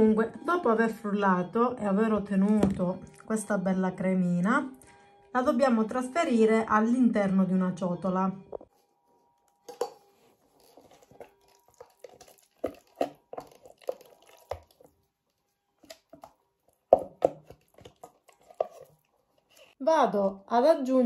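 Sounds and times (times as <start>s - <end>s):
spatula scraping plastic bowl: 9.8s - 14.9s, 15.8s - 19.8s
soft wet plops: 10.6s - 19.1s.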